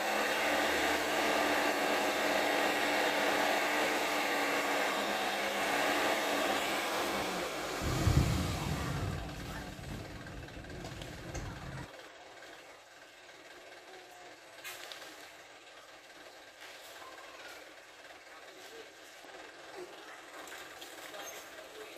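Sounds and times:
truck engine revving: 0.0s - 11.9s
deep rumble: 7.5s - 11.9s.

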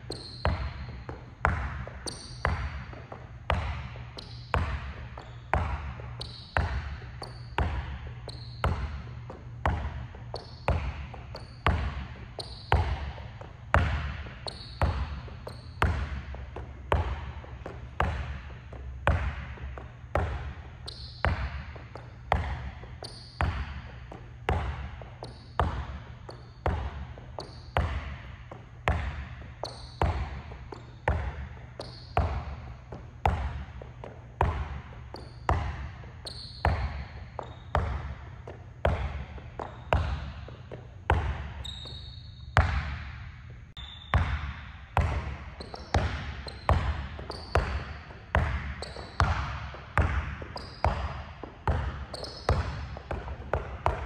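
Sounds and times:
shoe squeaks: 0.0s - 16.5s, 20.6s - 24.1s, 25.0s - 28.2s, 29.4s - 31.0s, 31.6s - 33.0s, 34.9s - 40.9s, 41.5s - 42.7s, 43.8s - 44.7s, 45.3s - 49.6s, 50.4s - 54.0s
basketball bouncing in a gym: 0.0s - 54.0s.

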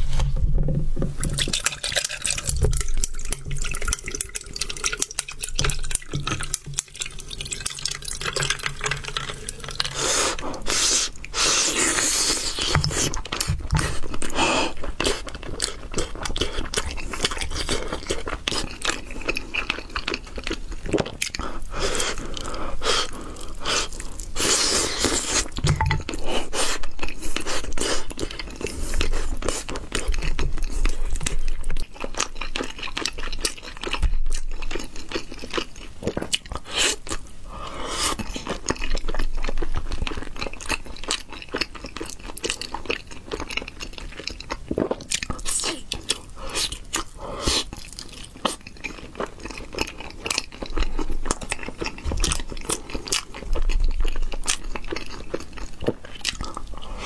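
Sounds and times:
juice dripping over ice: 1.2s - 10.0s
person chewing: 1.2s - 57.0s.

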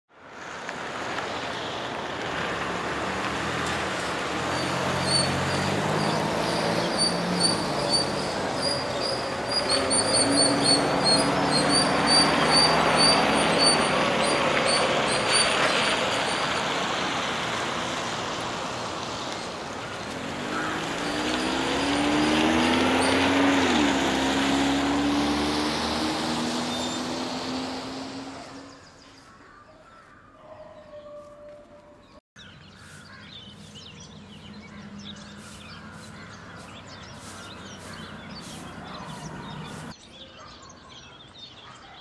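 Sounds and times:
vehicle engines and road noise: 0.1s - 29.4s, 31.8s - 40.0s
bird chirping: 4.5s - 15.7s, 26.4s - 27.6s, 32.0s - 42.0s
low engine hum: 33.5s - 39.9s.

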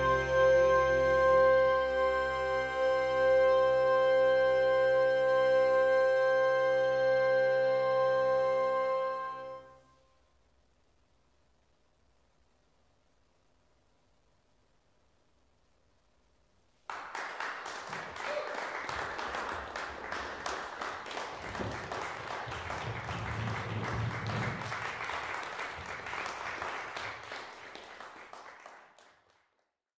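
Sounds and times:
roomful of people applauding: 16.8s - 29.8s.

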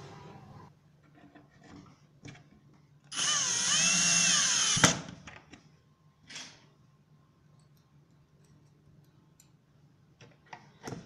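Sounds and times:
cordless drill whining: 3.1s - 5.0s.

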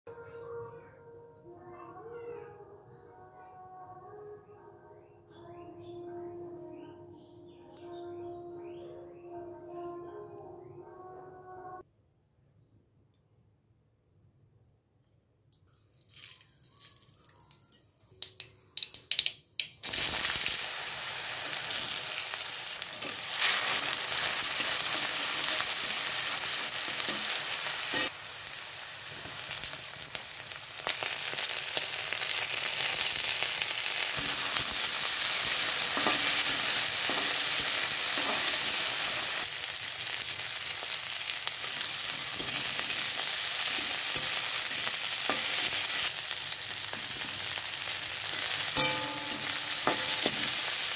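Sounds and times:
seeds popping in hot oil: 15.9s - 50.9s
vegetables sizzling in oil: 19.8s - 50.9s.

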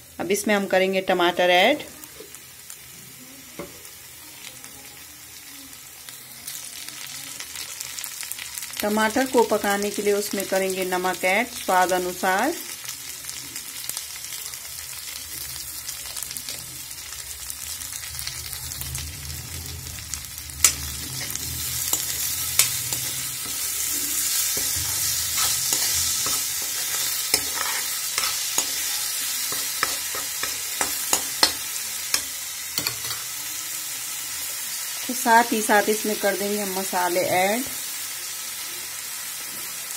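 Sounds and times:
vegetables sizzling in oil: 0.0s - 39.9s
spatula scraping and tapping pan: 20.6s - 33.3s.

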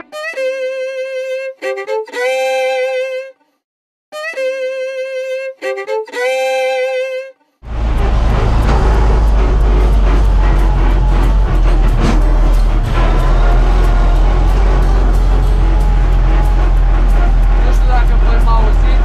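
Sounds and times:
solo violin melody: 0.0s - 3.4s, 4.1s - 12.6s
tractor engine noise: 7.6s - 19.0s.

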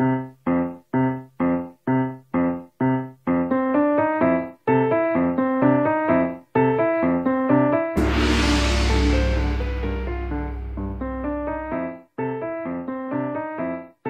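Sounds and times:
repeated struck chord: 8.0s - 11.9s.

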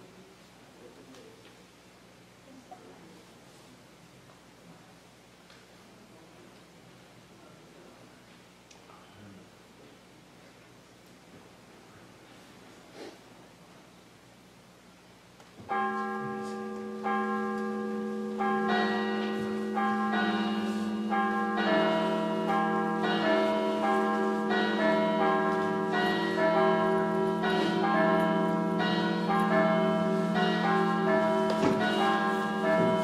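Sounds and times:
church bells ringing: 15.7s - 33.0s.

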